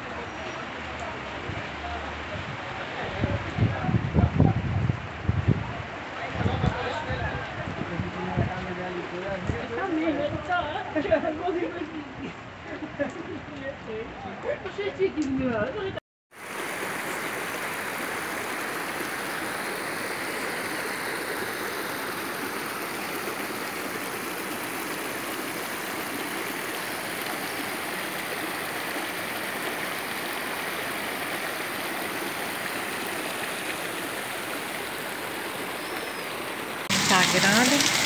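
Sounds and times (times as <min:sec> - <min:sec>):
creek water rushing: 0:16.3 - 0:38.0.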